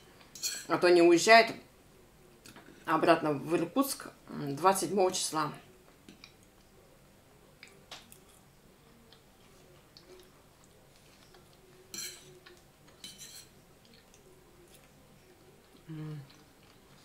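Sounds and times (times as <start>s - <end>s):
faint chewing: 7.5s - 17.0s
fork clicking and scraping on plate: 11.9s - 14.1s.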